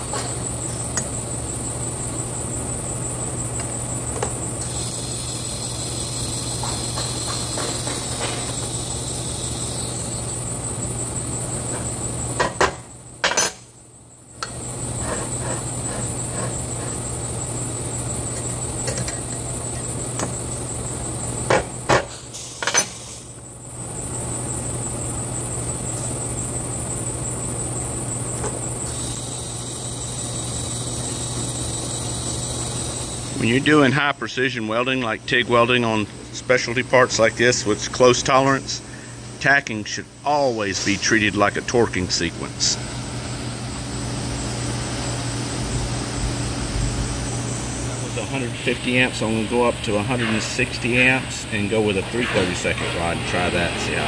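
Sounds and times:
shop machine hum: 0:00.0 - 0:54.0
welding arc buzzing: 0:04.5 - 0:10.8, 0:28.8 - 0:33.9.

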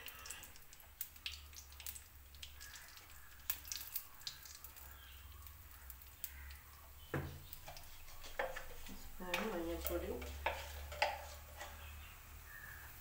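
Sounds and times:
oil crackling and popping: 0:00.0 - 0:13.0
spoon moving in pan: 0:07.4 - 0:13.0.

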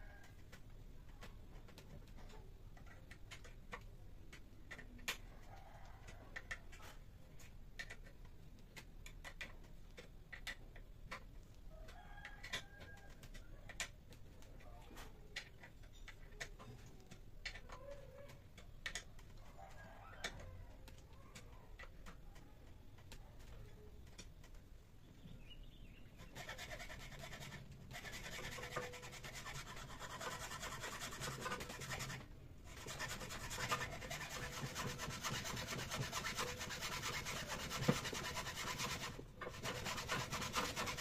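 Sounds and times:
chisel cutting wood: 0:26.2 - 0:41.0.

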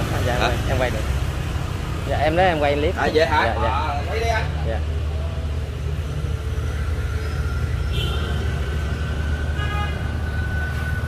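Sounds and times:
traffic rumble: 0:00.0 - 0:11.0
vehicle horn: 0:07.8 - 0:08.7, 0:09.6 - 0:10.8.

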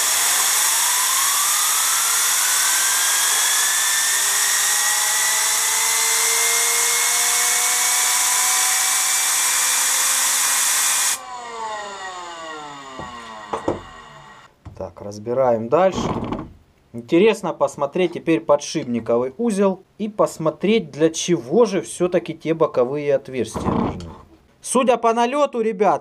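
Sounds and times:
turbine whine: 0:00.0 - 0:14.5.

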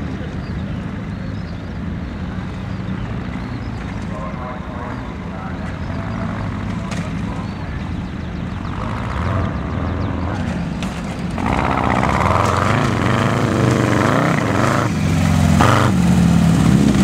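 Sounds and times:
car engine revving: 0:04.1 - 0:17.0.

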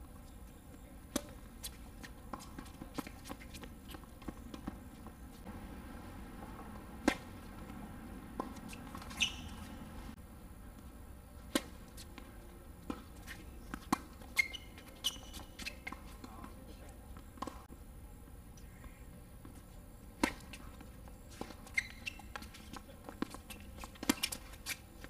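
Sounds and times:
low background noise: 0:00.0 - 0:25.0
tennis balls hit by rackets: 0:00.8 - 0:10.2, 0:11.4 - 0:17.7, 0:18.5 - 0:25.0.

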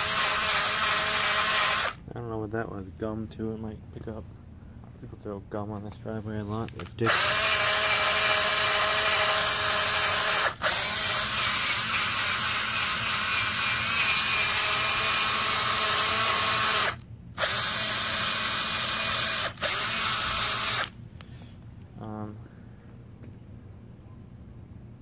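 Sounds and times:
drill motor whine: 0:00.0 - 0:02.0, 0:07.1 - 0:20.9.

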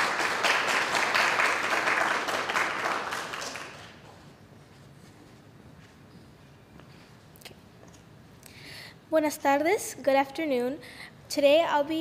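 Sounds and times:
small audience applauding: 0:00.0 - 0:04.1.

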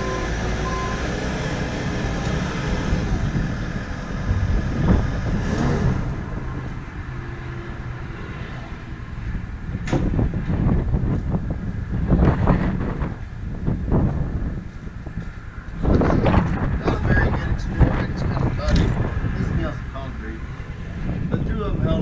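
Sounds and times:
diesel engine running: 0:00.0 - 0:12.2.

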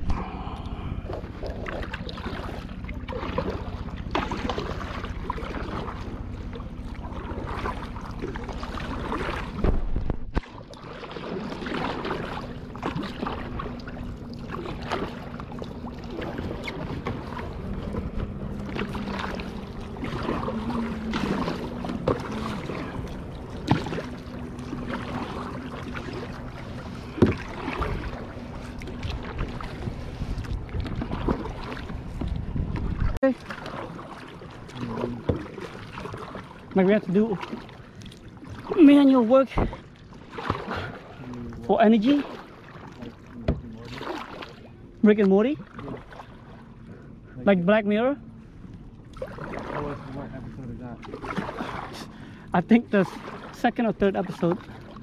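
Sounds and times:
kayak paddles splashing: 0:00.0 - 0:55.0
wind buffeting microphone: 0:26.2 - 0:33.2.

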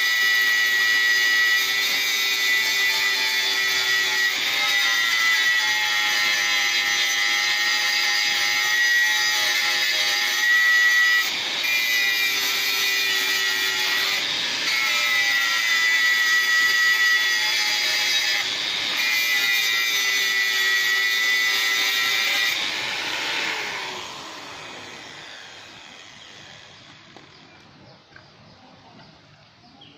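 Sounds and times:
angle grinder grinding steel: 0:00.0 - 0:27.8
grinder disc spinning down: 0:18.4 - 0:27.5.

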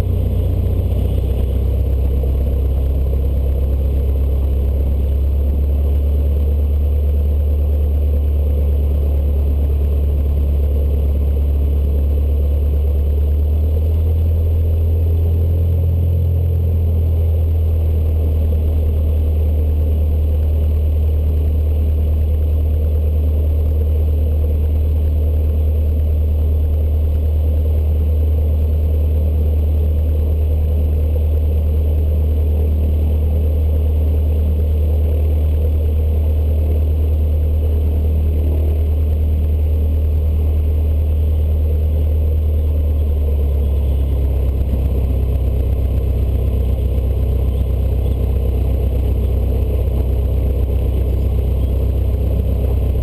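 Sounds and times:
aircraft engine low drone: 0:00.0 - 0:53.0.

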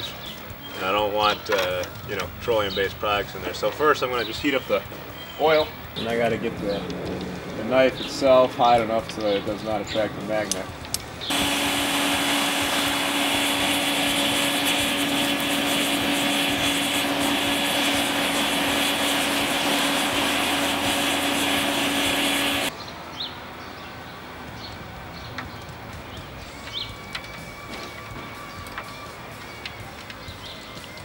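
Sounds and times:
forge air blower running: 0:11.2 - 0:22.7.

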